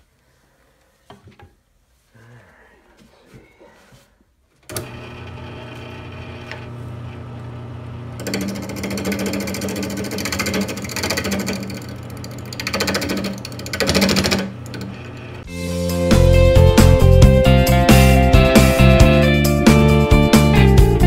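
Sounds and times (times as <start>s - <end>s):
lathe motor humming: 4.7s - 15.5s
tool scraping spinning wood: 8.2s - 15.4s.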